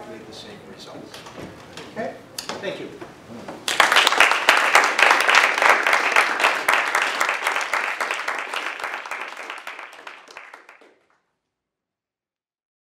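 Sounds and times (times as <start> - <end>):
audience applauding: 3.6 - 11.2.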